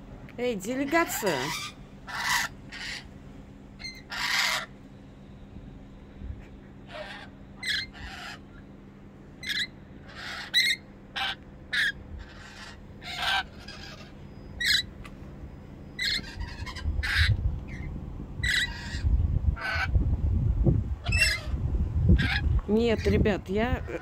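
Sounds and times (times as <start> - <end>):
lorikeets screeching: 0.6 - 3.1, 3.8 - 4.8, 6.7 - 8.8, 9.4 - 20.0, 21.0 - 24.0
low rumble: 12.0 - 24.0.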